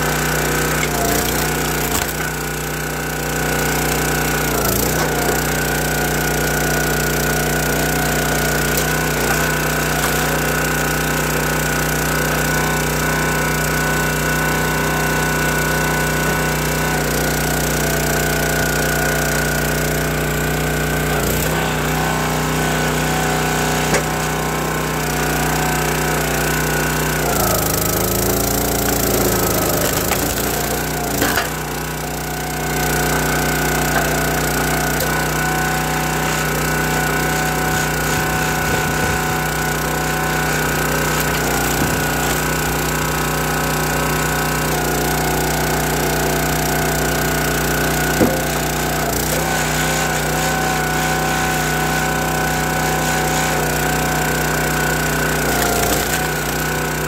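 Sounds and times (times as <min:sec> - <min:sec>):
wood cracking and splintering: 0:00.0 - 0:12.9, 0:25.2 - 0:50.4, 0:53.4 - 0:57.0
log splitter engine running: 0:00.0 - 0:57.0.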